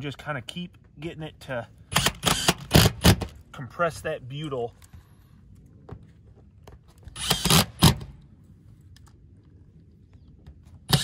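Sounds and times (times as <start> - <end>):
impact driver driving screw: 1.9 - 3.3, 7.2 - 8.1.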